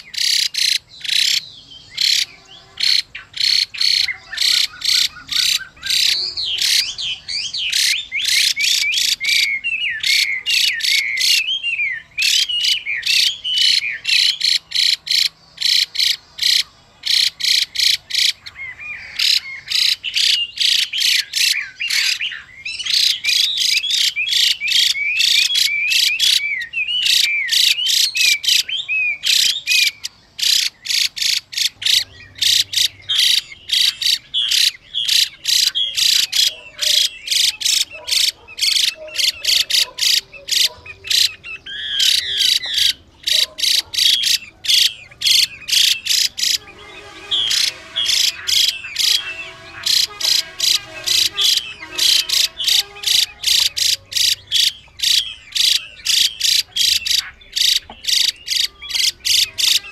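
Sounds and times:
bird harsh rattling calls: 0.0s - 59.9s
bird whistled notes: 44.2s - 59.9s.

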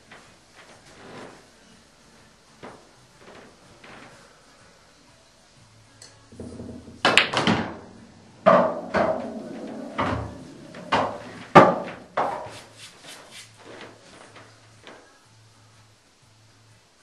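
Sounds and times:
cue striking ball: 6.3s - 12.6s
ball dropping into pocket: 6.4s - 12.5s
pool balls clacking together: 6.4s - 12.6s
balls hitting cushions: 6.4s - 12.8s.

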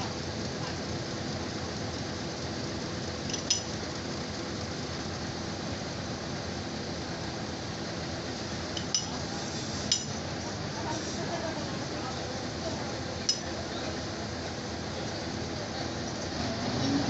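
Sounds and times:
steady background noise: 0.0s - 17.0s
sharp metallic clinks: 3.3s - 3.7s.

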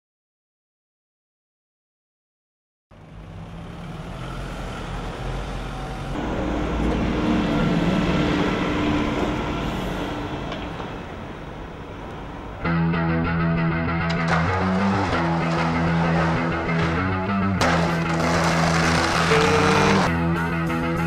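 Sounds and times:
traffic noise: 2.9s - 12.7s, 14.1s - 20.1s
bus engine pulling away: 2.9s - 12.8s, 14.5s - 20.1s.

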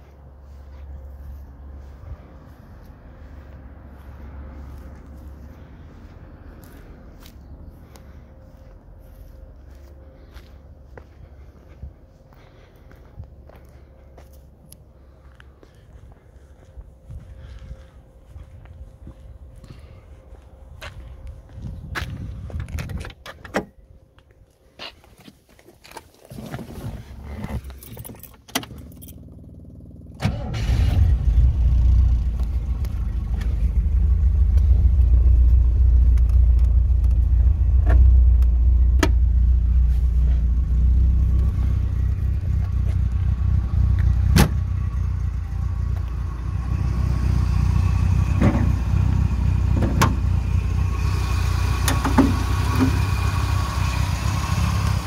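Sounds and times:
car engine starting and idling: 0.0s - 23.8s, 26.2s - 55.0s
keys jangling: 27.7s - 29.3s.

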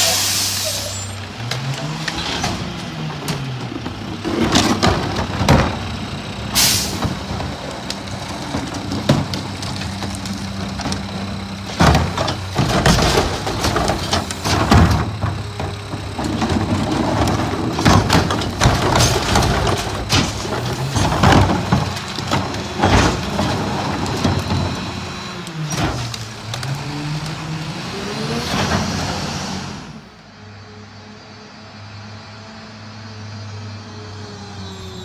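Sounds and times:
air hiss: 0.0s - 1.1s
trash carts banging into hopper: 0.0s - 27.4s, 28.0s - 29.8s
diesel engine revving: 0.0s - 35.0s.

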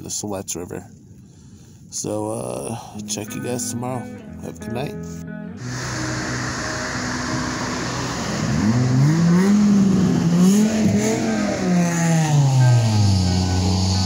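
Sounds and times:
rush of tyres and wind: 5.6s - 14.0s
vehicle engine passing by: 5.6s - 14.0s.

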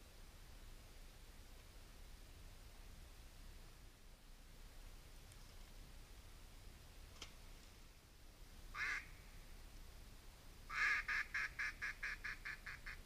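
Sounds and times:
duck quacking: 10.7s - 13.0s.

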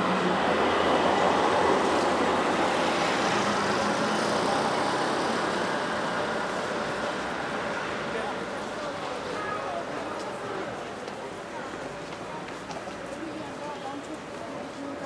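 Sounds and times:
tram passing on rails: 0.0s - 15.0s.

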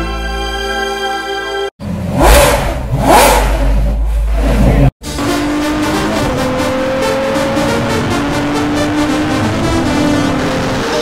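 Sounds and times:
music: 0.0s - 1.7s, 5.0s - 11.0s
car engine revving: 1.8s - 11.0s.

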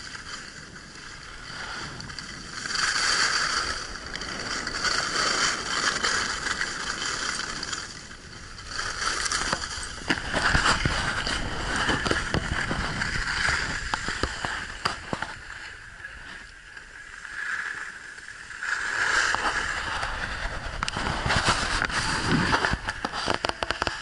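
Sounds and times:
skis scraping over snow: 0.0s - 24.0s
wind rumbling on microphone: 0.0s - 24.0s
sharp clicks and knocks: 20.8s - 24.0s.

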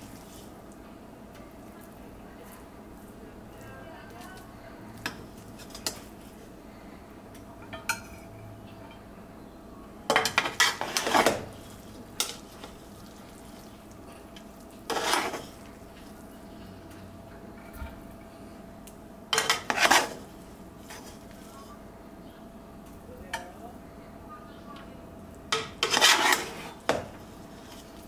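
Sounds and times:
faint steady hum: 0.0s - 28.0s
metal utensil scraping cookware: 10.1s - 11.5s, 14.9s - 15.6s, 19.3s - 20.3s, 25.5s - 27.0s.

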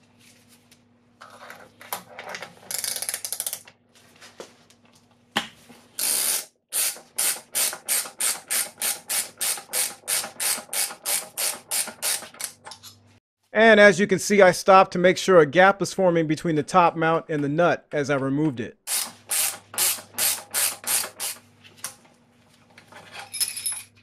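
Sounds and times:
ratchet wrench clicking: 6.0s - 12.3s.

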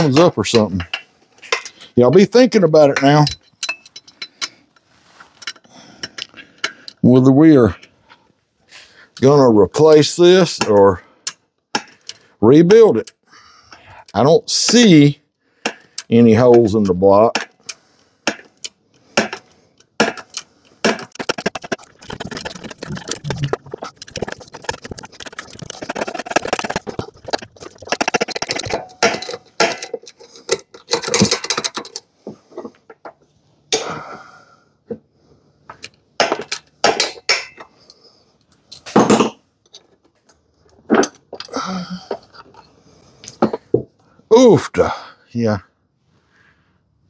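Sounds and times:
steel tools clinking on metal: 2.8s - 4.6s.

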